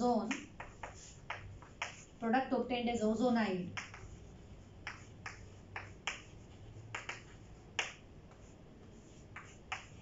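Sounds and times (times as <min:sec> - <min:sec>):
chalk tapping on chalkboard: 0:00.1 - 0:02.2, 0:03.6 - 0:10.0.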